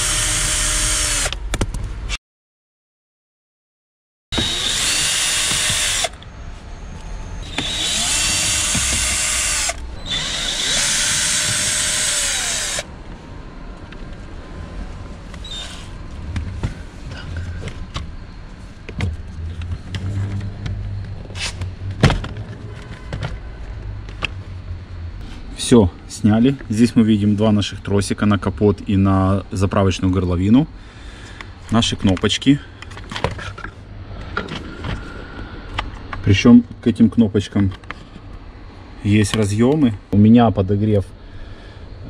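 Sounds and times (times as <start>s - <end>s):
cordless drill motor whine: 0.0s - 1.4s, 4.4s - 6.2s, 7.4s - 12.9s, 15.4s - 15.9s.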